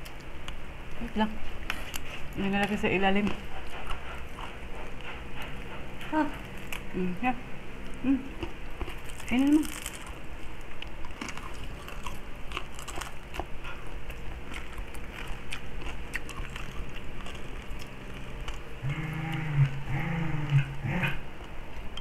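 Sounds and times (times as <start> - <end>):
chewing and crunching crisp skin: 0.0 - 7.0, 7.8 - 21.6
person humming: 18.8 - 21.2.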